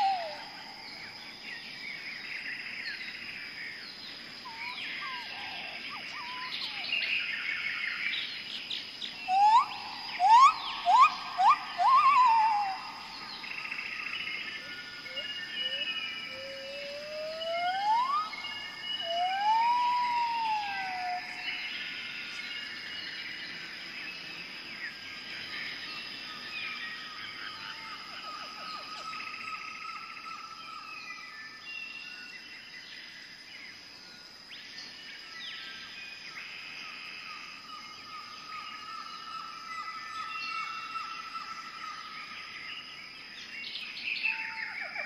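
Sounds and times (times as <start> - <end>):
loud whistled calls: 0.0 - 0.6, 9.2 - 13.8, 15.1 - 21.7
high insect drone: 0.0 - 45.0
bird chirps and trills: 9.1 - 13.5.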